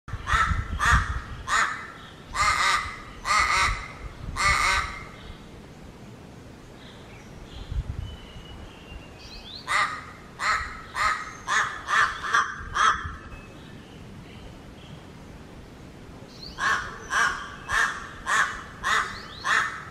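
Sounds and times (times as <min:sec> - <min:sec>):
crow cawing: 0:00.2 - 0:05.1, 0:09.7 - 0:13.1, 0:16.6 - 0:19.9.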